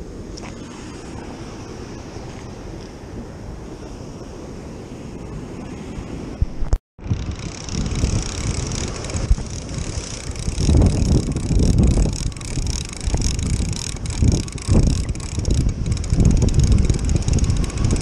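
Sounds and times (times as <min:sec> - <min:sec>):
wind buffeting microphone: 0:05.5 - 0:18.0.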